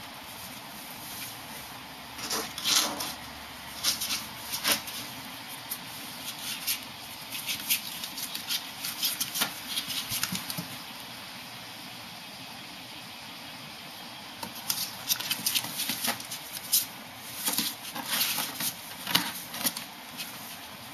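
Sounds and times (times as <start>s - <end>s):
animals scrabbling on cardboard: 3.8s - 10.8s, 14.4s - 20.9s.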